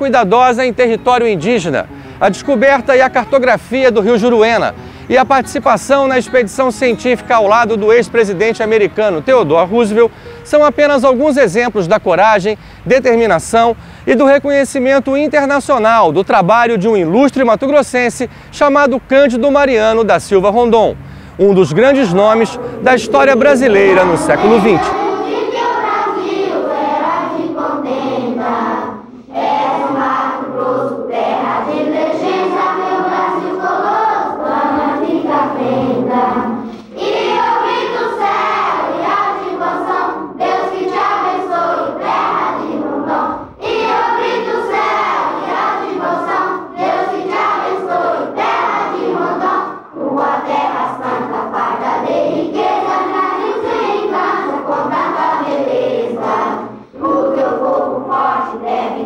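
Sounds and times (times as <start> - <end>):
choir singing: 0.6 - 11.9, 21.4 - 59.0
singers breathing: 1.8 - 2.2, 4.7 - 5.1, 10.1 - 10.5, 12.6 - 12.9, 13.8 - 14.1, 18.3 - 18.5, 21.0 - 21.5, 22.5 - 23.1, 29.0 - 29.4, 36.4 - 37.0, 56.6 - 57.0.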